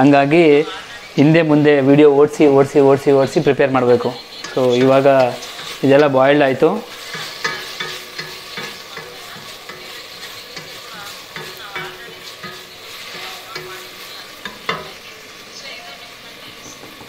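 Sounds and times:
wooden spatula scraping steel pan: 0:03.2 - 0:15.2.

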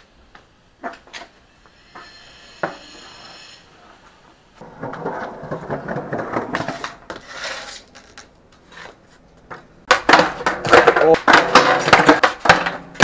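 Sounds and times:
skateboard tail cracking: 0:04.6 - 0:13.0.

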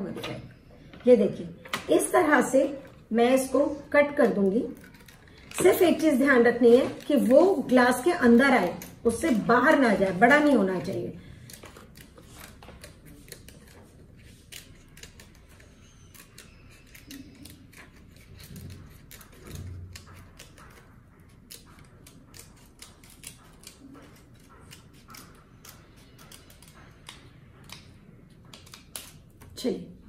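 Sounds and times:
scissors snipping plastic sheet: 0:04.5 - 0:29.7.

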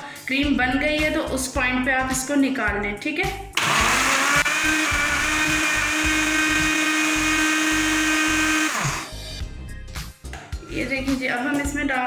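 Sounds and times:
blender motor whining: 0:03.6 - 0:09.2.

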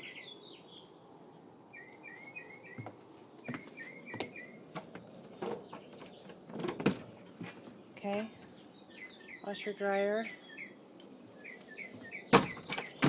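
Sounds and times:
small bird chirping: 0:01.7 - 0:04.7, 0:07.7 - 0:13.0.

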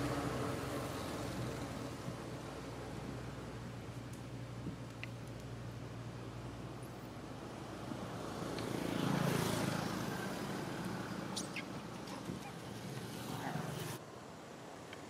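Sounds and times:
vehicle driving past: 0:00.0 - 0:03.2, 0:07.8 - 0:14.0.

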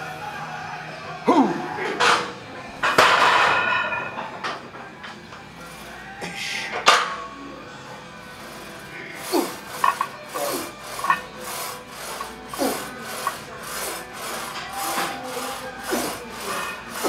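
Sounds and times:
rapid rasping breaths: 0:08.0 - 0:17.0.

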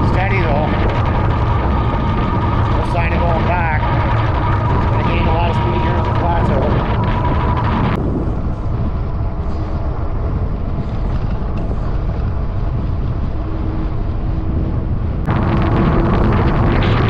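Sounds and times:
crackling: 0:00.0 - 0:08.0, 0:15.2 - 0:17.0
wind buffeting microphone: 0:00.0 - 0:17.0.

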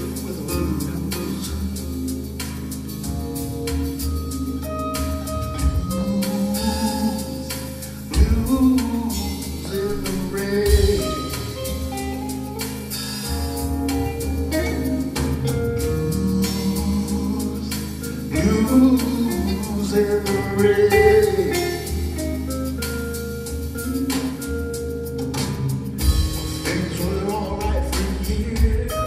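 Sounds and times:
man singing: 0:00.0 - 0:02.3, 0:05.9 - 0:11.9, 0:14.5 - 0:22.2, 0:26.5 - 0:29.0
drums: 0:00.0 - 0:29.0
electric keyboard: 0:00.0 - 0:29.0.

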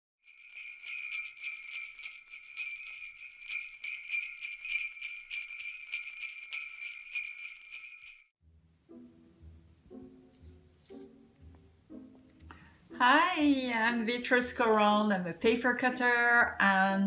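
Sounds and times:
jingle bells shaken: 0:00.2 - 0:08.3
soft plucked-string music: 0:08.5 - 0:15.1.

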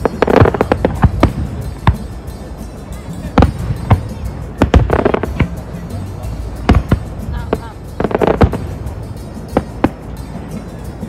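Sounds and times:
fireworks bangs: 0:00.0 - 0:02.1
fireworks crackle: 0:00.0 - 0:10.8.

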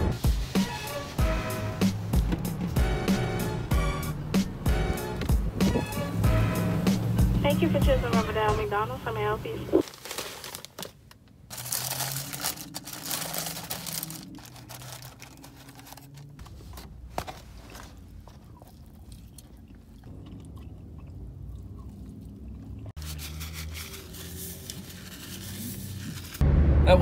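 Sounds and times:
paper wrapper rustling: 0:09.8 - 0:18.1, 0:23.0 - 0:26.4
chewing: 0:17.7 - 0:23.0.

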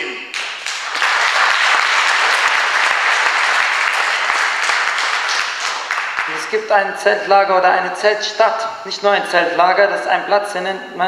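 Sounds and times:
audience applauding: 0:00.3 - 0:06.7.

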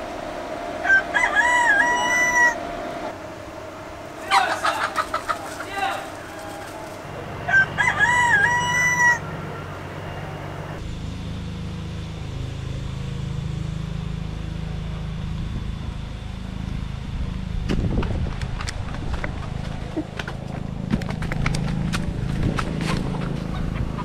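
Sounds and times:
rooster crowing: 0:00.8 - 0:03.1, 0:04.2 - 0:10.4
steady low rumble: 0:09.2 - 0:24.0.

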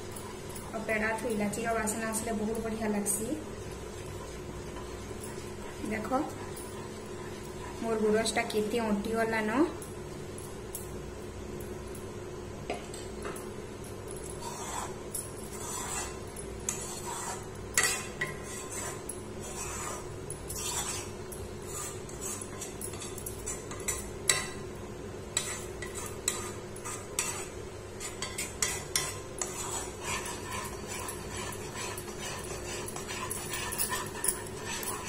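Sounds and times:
steady low hum: 0:00.0 - 0:35.0
spatula scraping metal pan: 0:14.4 - 0:15.0, 0:15.6 - 0:22.7, 0:25.4 - 0:35.0.

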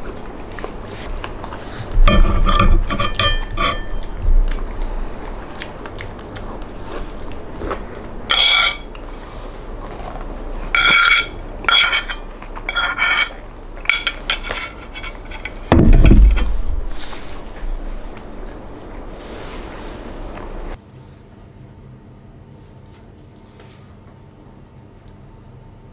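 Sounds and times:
metal spoon scraping ceramic plate: 0:02.1 - 0:04.2, 0:08.3 - 0:08.9, 0:10.7 - 0:15.7
plate thumping on wooden table: 0:15.7 - 0:16.6.

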